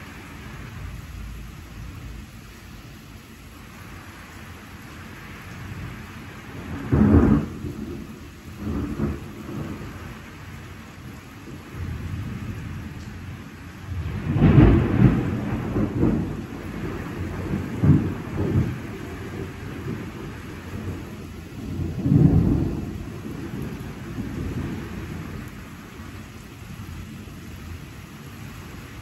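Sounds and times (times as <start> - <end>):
steady rain: 0.0 - 29.0
thunder rumbling: 5.6 - 26.8.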